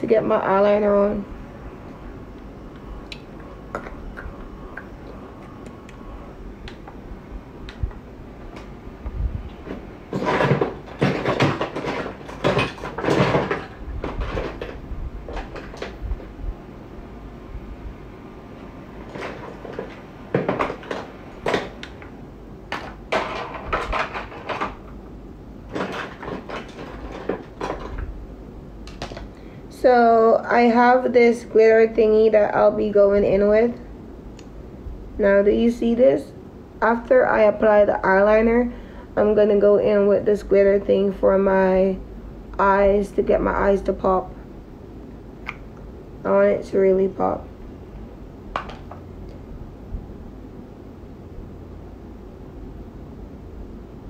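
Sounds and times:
small objects knocking and clattering: 10.1s - 16.0s, 22.7s - 25.0s, 25.7s - 28.1s.

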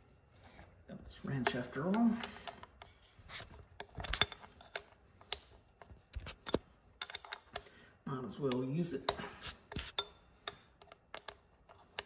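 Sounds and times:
wrench clicking on metal bolt: 10.0s - 12.0s.

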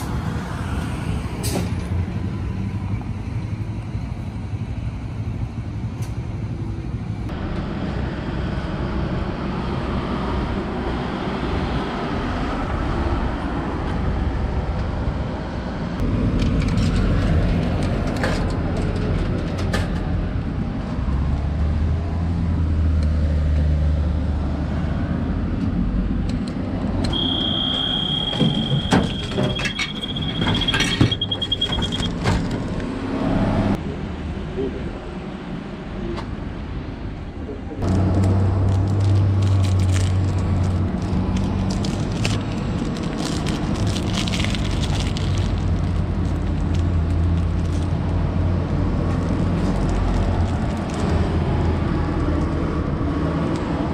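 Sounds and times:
road traffic rumble: 0.0s - 53.9s
high electronic beep: 27.1s - 32.2s.

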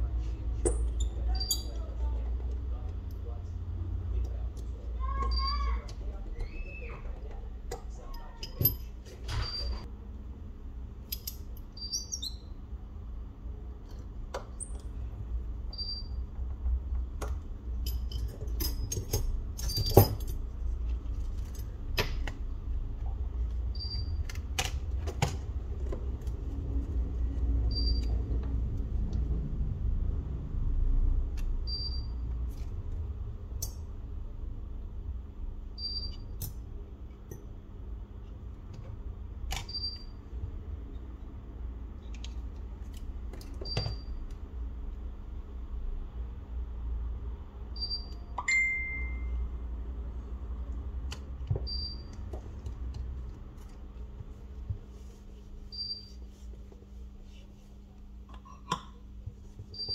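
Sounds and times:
steady low hum: 0.0s - 59.9s
short high beep: 47.8s - 49.4s.

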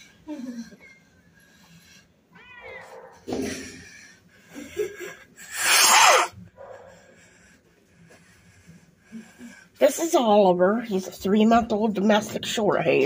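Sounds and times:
cats meowing: 2.3s - 3.3s.

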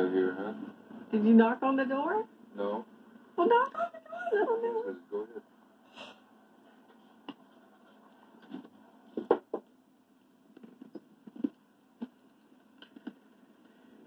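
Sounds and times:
videotape hum: 0.0s - 14.0s.

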